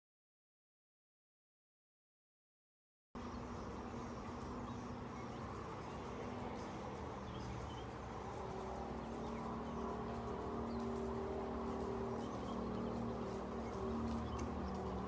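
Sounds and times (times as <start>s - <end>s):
low hum: 3.2s - 15.0s.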